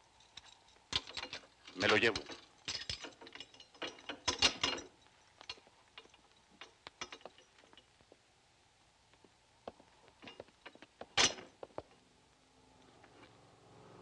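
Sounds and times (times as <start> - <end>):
keys and metal lock clicking: 0.1 - 7.8.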